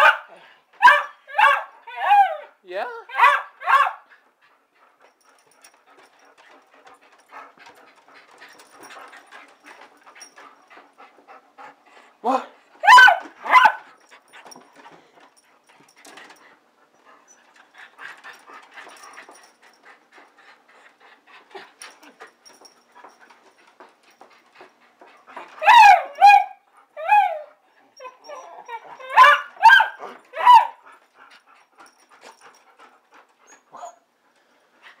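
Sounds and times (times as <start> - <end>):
dog whining and yelping: 0.8 - 4.0, 12.8 - 14.0, 25.3 - 31.0, 33.4 - 34.2.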